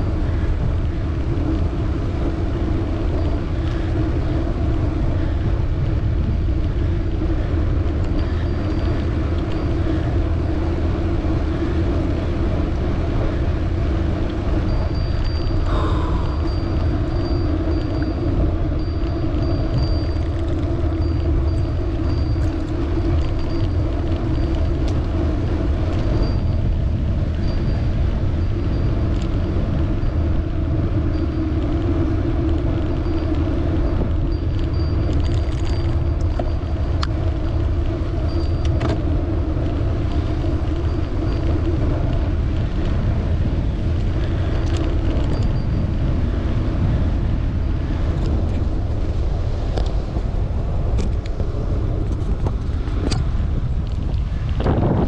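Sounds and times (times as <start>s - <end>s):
bicycle tyres rumbling on road: 0.0s - 55.0s
wind rushing past microphone: 0.0s - 55.0s.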